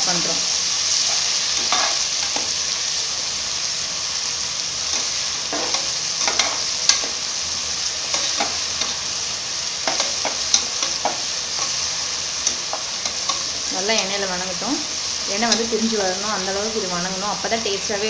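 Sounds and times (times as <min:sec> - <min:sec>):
onions sizzling in hot oil: 0:00.0 - 0:18.0.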